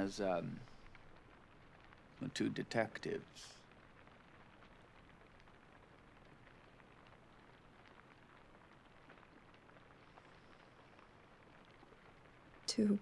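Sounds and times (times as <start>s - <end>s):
faint ticks: 0.0s - 2.2s
faint steady hiss: 0.0s - 13.0s.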